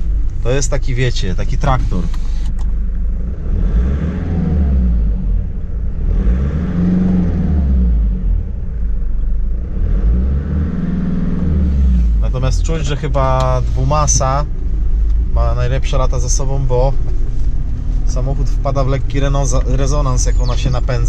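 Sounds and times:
rough car engine revving: 0:00.0 - 0:21.0.

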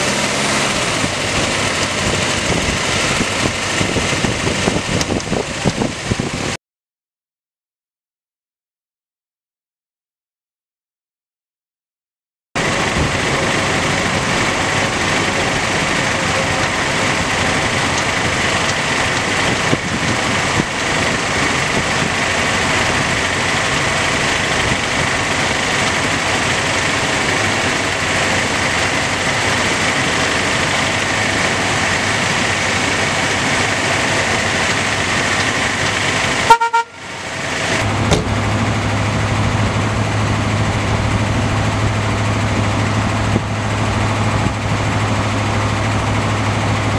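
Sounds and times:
car engine running: 0:00.0 - 0:06.6, 0:12.6 - 0:46.9
car horn toot: 0:36.4 - 0:37.1.

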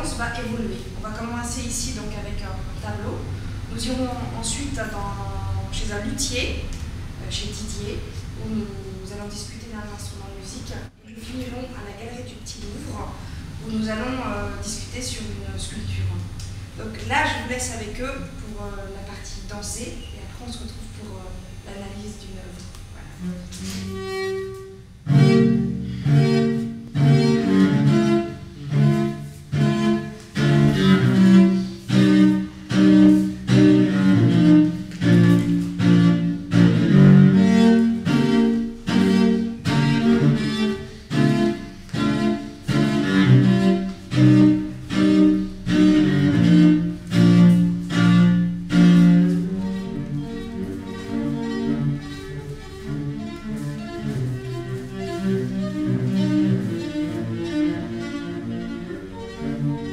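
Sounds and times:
solo cello playing: 0:23.1 - 0:59.9.

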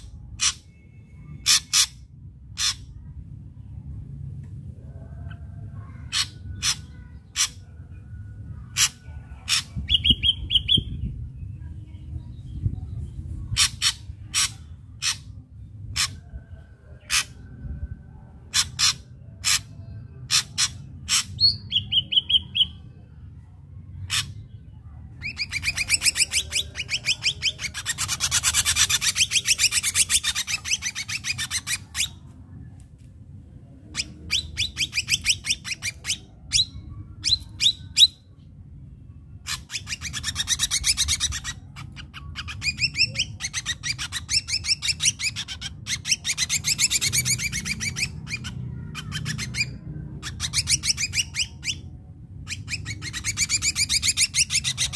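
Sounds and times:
bird singing harsh notes: 0:08.7 - 0:11.2, 0:18.6 - 0:22.9, 0:25.2 - 0:32.3, 0:33.9 - 0:38.4, 0:39.3 - 0:54.9
clear bird whistle: 0:34.0 - 0:38.3.

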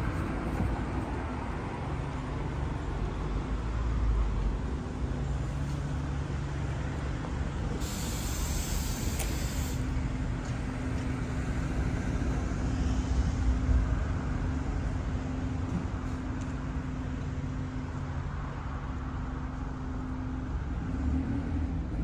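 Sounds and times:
road traffic rumble: 0:00.0 - 0:22.0
short high hiss: 0:07.8 - 0:09.9.

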